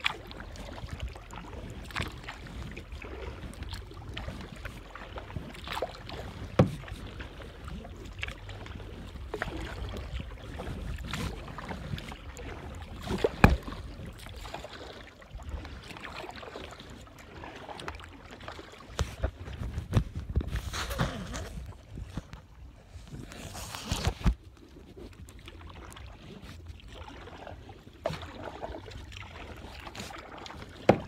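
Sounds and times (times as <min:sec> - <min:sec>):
paddle splashing in water: 0:00.0 - 0:31.0
wind rumble on microphone: 0:19.0 - 0:25.2.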